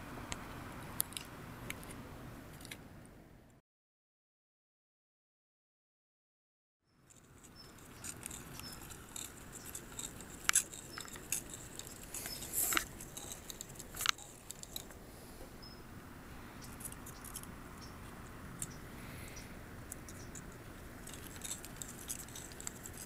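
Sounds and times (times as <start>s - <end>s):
paper robot clicking and crinkling: 7.1s - 15.0s, 16.6s - 18.8s, 19.9s - 23.0s.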